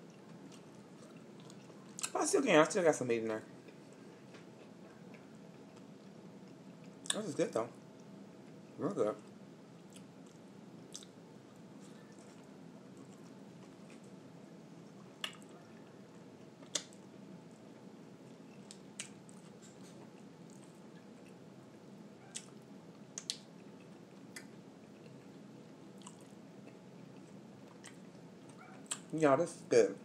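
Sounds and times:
person chewing food: 0.0s - 2.2s, 3.6s - 7.2s, 9.2s - 14.2s, 14.9s - 29.1s
wet mouth clicks: 23.2s - 23.5s.

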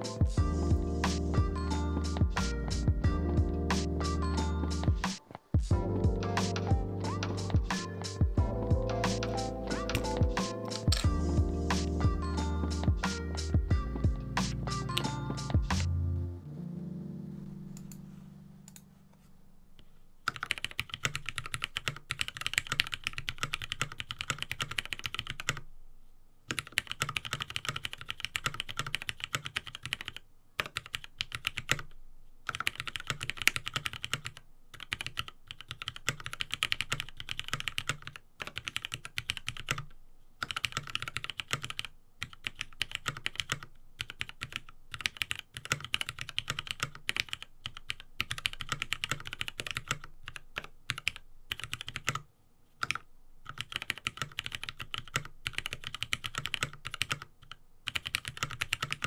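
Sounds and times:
mechanical keyboard typing: 9.2s - 11.2s, 20.3s - 25.6s, 26.5s - 31.9s, 32.5s - 59.0s.

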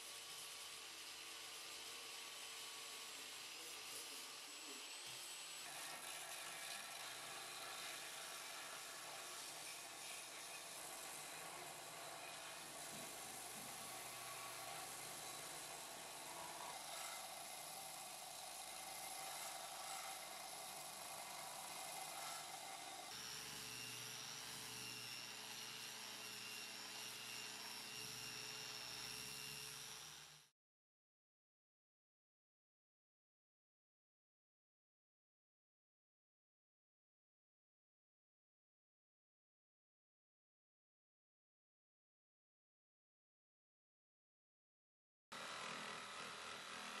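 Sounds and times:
high-pitched grinder whine: 3.0s - 30.5s.

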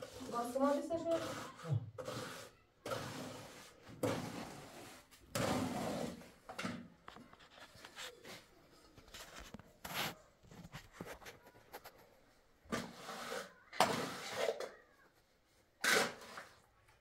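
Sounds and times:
trowel scraping mortar: 0.0s - 6.4s, 12.7s - 14.8s, 15.8s - 16.7s.

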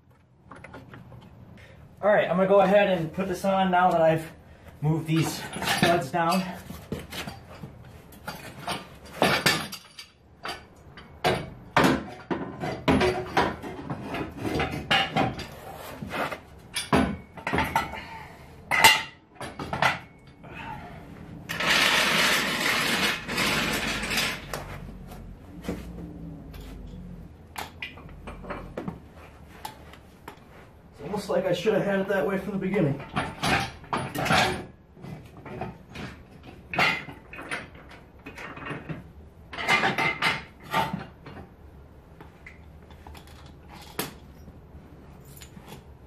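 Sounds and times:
metal hitch parts clanking: 4.8s - 15.8s, 16.6s - 30.5s, 32.6s - 41.5s.

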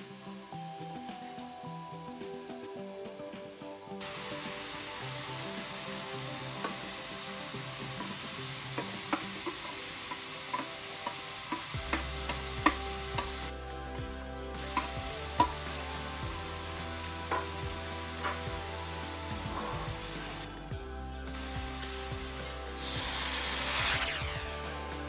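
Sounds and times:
vegetables sizzling in oil: 4.0s - 13.7s, 14.6s - 20.7s, 21.3s - 24.9s
metal spatula tapping: 8.0s - 13.4s.

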